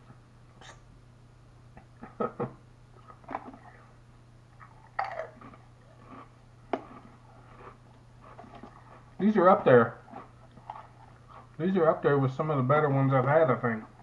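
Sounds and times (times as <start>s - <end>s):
person chewing crisps: 4.6s - 11.6s.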